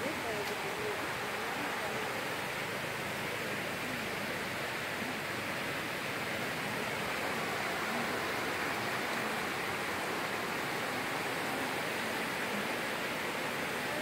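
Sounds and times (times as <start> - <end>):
shallow running water rushing: 0.0 - 14.0.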